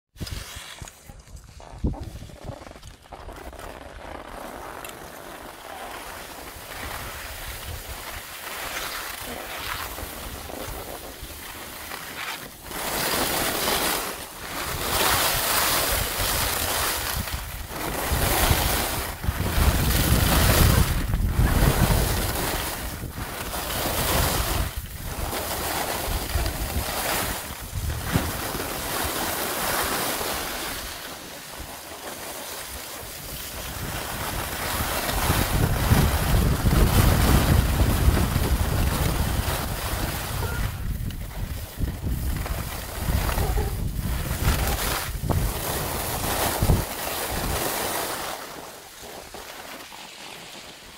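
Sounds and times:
skis scraping over snow: 0.2s - 50.9s
wind buffeting microphone: 14.7s - 28.9s, 33.2s - 47.6s.

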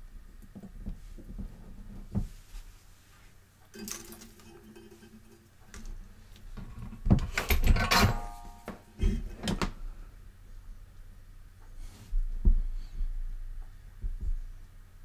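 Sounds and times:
metal tools clattering: 3.7s - 6.0s, 7.3s - 8.8s.

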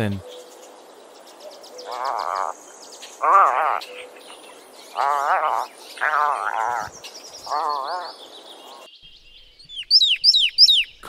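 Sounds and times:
puffins calling: 0.0s - 8.9s
bird singing down-slurred whistles: 6.7s - 11.0s.

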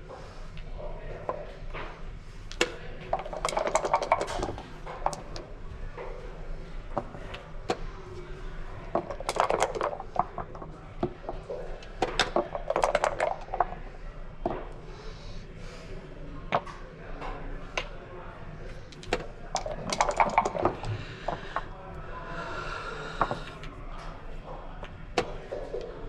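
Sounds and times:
dice clicking on board: 2.5s - 5.4s, 9.0s - 11.4s, 12.0s - 13.8s, 18.9s - 21.7s
plastic checkers clacking down: 2.5s - 5.4s, 9.0s - 13.8s, 18.9s - 21.7s
dice rattling in a cup: 3.1s - 5.4s, 8.9s - 10.6s, 12.1s - 13.8s, 18.9s - 20.9s.

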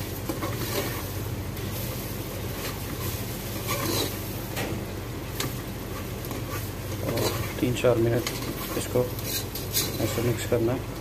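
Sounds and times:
spoon scraping metal pot: 3.6s - 4.2s, 8.2s - 10.3s.

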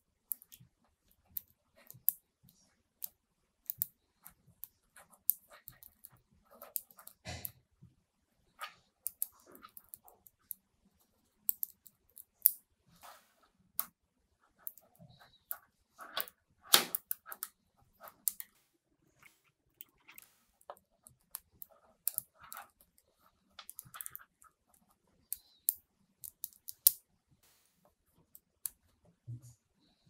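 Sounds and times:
magnetic balls clicking together: 0.3s - 2.2s, 3.0s - 7.6s, 8.6s - 10.6s, 11.4s - 12.6s, 14.6s - 18.5s, 19.2s - 23.0s, 23.6s - 27.0s.

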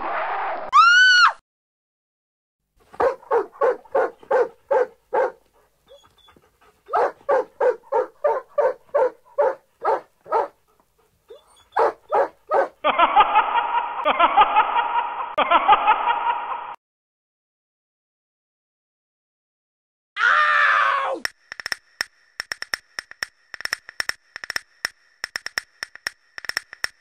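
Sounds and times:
cartoon dog barking: 3.0s - 5.4s, 6.9s - 10.6s, 11.8s - 12.8s.

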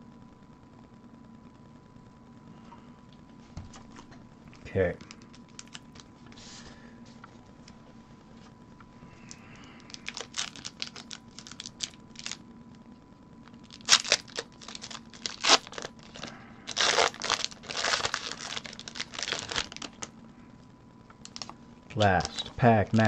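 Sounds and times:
foil wrapper crinkling and tearing: 4.7s - 6.1s, 9.2s - 12.4s, 13.5s - 20.1s, 21.2s - 23.0s.

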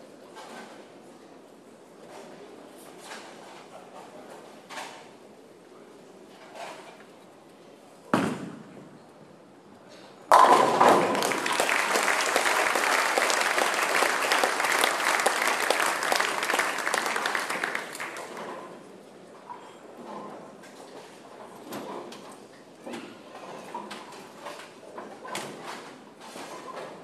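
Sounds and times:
bowling ball thudding onto lane: 10.3s - 12.0s
bowling pins crashing: 10.3s - 16.0s
crowd applause: 10.3s - 18.6s.

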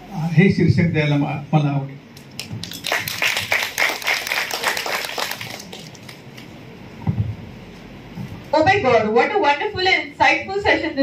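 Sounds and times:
audience applauding: 2.3s - 6.5s.

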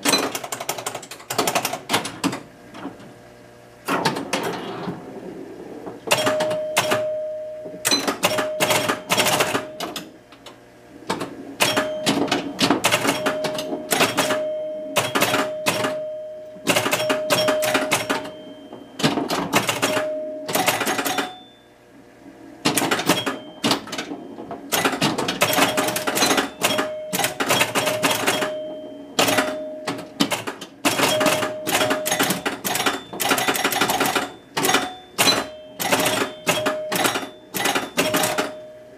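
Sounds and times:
pinball machine clacking: 0.0s - 3.1s, 3.8s - 21.7s, 22.6s - 38.9s
short ringing tones: 6.1s - 9.8s, 11.6s - 19.0s, 19.9s - 21.8s, 23.1s - 30.2s, 31.0s - 38.9s.

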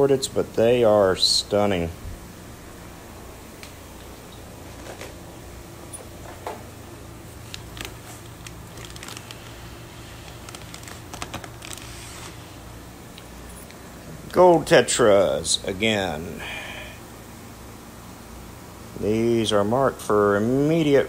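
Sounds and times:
plastic bags crinkling: 7.2s - 12.6s.

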